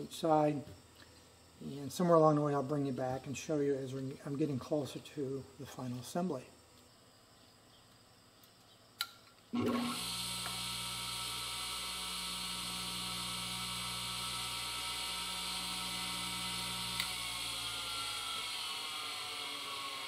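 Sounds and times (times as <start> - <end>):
bench grinder motor whirring: 9.6 - 20.0.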